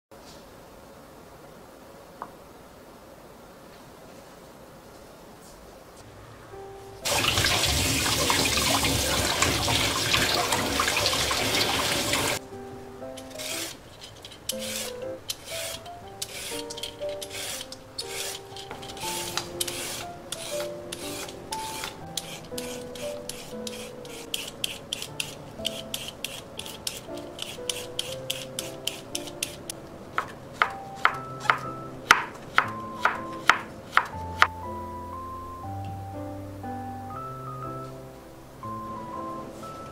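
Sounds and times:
hands rubbing root: 13.2s - 34.5s
knife chopping on wooden board: 14.6s - 34.5s.

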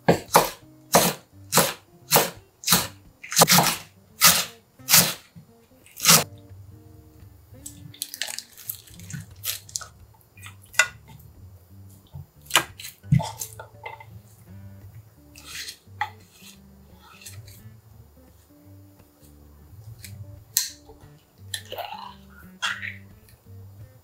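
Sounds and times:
knife chopping on wooden board: 0.1s - 5.2s, 12.5s - 13.4s
wet squelches into pot: 7.6s - 11.2s.

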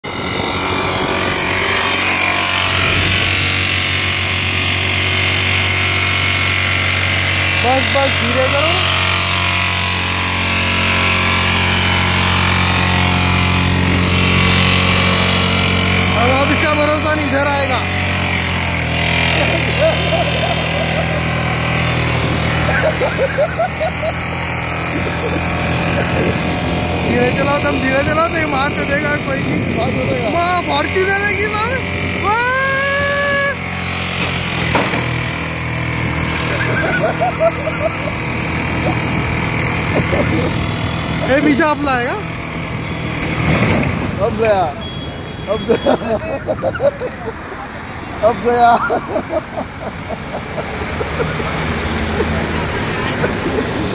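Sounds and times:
road and wind noise: 0.0s - 53.9s
traffic noise: 0.0s - 53.9s
vehicle engine running: 0.0s - 53.9s
vehicle horn honking: 44.7s - 46.2s.

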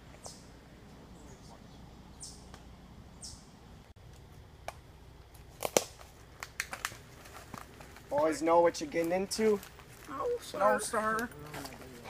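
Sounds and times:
sharp twig snaps: 4.1s - 7.0s
footsteps crunching on leaves: 5.9s - 12.0s.

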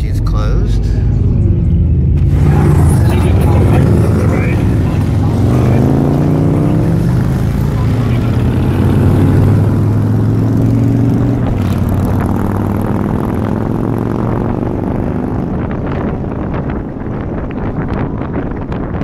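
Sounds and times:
motorcycle engine drone: 0.0s - 19.0s
surrounding traffic: 0.0s - 19.0s
wind buffeting microphone: 1.0s - 19.0s.

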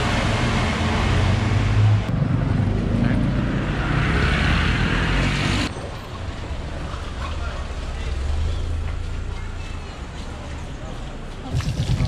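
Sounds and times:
street noise: 0.0s - 12.0s
fountain water splashing: 11.5s - 12.0s.

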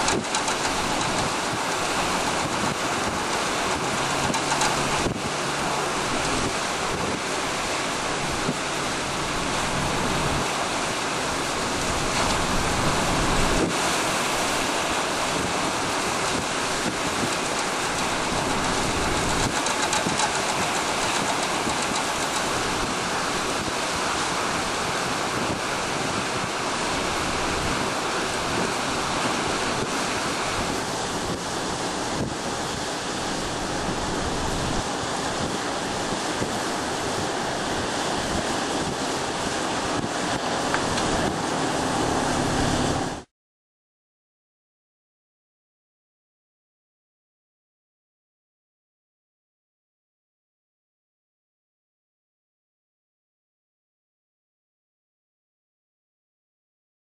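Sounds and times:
gusty wind buffeting microphone: 0.0s - 43.3s
waves splashing against rocks: 0.0s - 43.3s.

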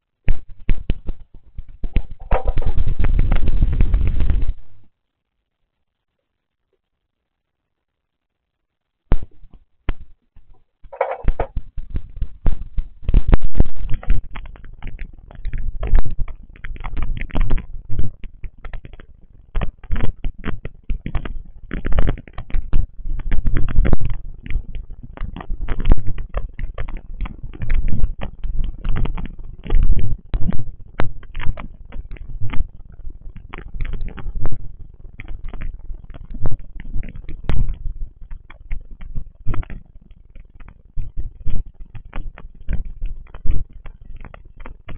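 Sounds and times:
heavy rain crackling: 0.4s - 5.0s.

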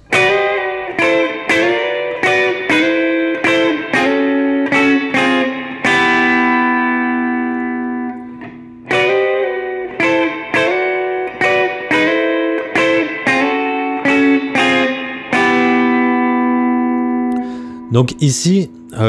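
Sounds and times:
electric guitar blues chords: 0.0s - 19.0s.

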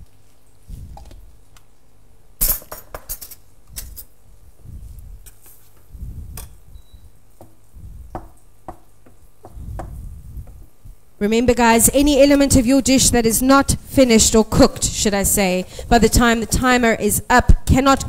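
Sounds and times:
dull low thumps: 5.9s - 6.8s, 7.7s - 8.3s, 9.4s - 11.0s.

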